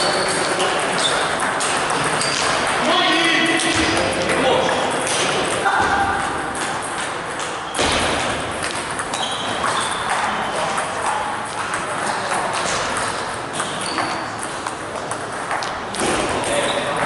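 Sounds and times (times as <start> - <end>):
table tennis ball clicking: 8.6 - 16.0.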